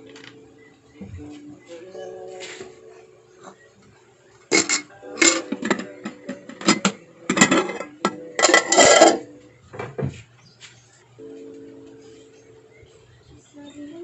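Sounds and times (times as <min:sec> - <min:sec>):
metal kitchenware clanking: 0:04.5 - 0:09.3.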